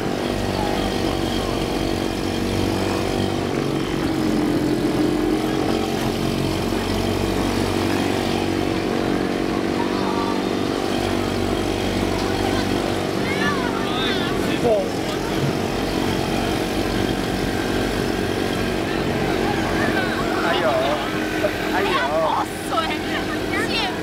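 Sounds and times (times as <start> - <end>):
small outboard motors droning: 0.0 - 24.0.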